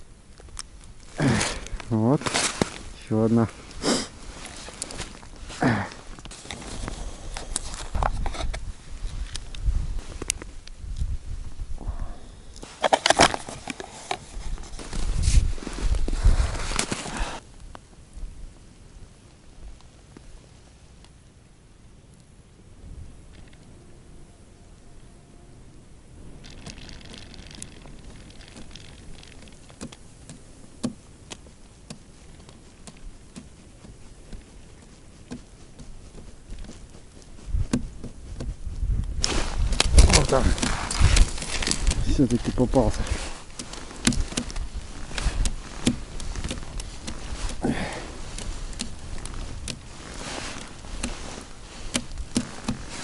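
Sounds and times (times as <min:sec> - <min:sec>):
low hiss: 0:00.0 - 0:53.0
gloved hand handling noise: 0:00.3 - 0:11.2, 0:12.0 - 0:17.8, 0:26.3 - 0:53.0
clothing rustle: 0:01.1 - 0:10.6, 0:12.6 - 0:17.4, 0:31.1 - 0:53.0
fishing rod clicks and taps: 0:26.4 - 0:34.6, 0:43.4 - 0:47.6.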